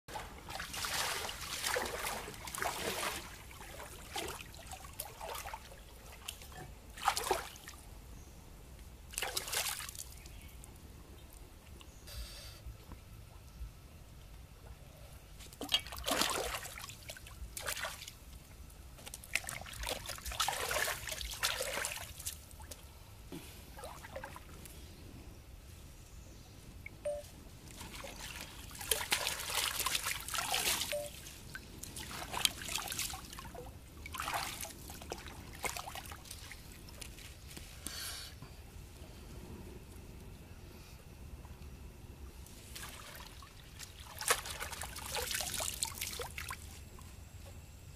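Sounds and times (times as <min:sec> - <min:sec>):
water trickling and splashing: 0:00.1 - 0:07.8, 0:09.1 - 0:10.4, 0:15.5 - 0:22.9, 0:23.8 - 0:24.6, 0:27.1 - 0:37.8, 0:42.6 - 0:47.0.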